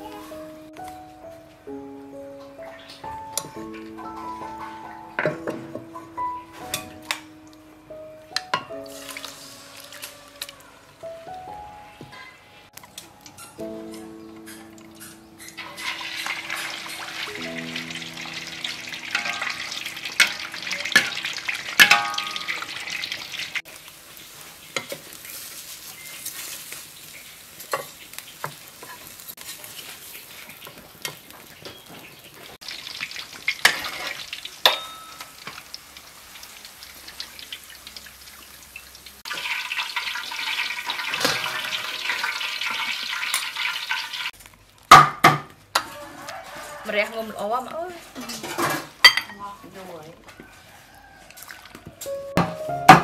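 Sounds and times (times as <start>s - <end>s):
pork sizzling in hot oil: 8.4s - 10.7s, 12.7s - 49.2s.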